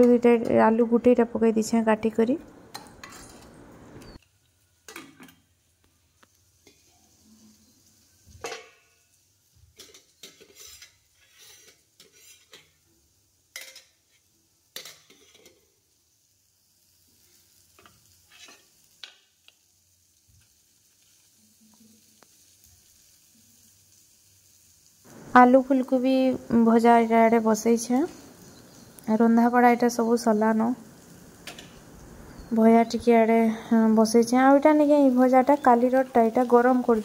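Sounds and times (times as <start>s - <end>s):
faint steady hiss: 0.0s - 37.0s
steel pot lids and spoon clanking: 2.7s - 4.2s, 8.4s - 8.8s.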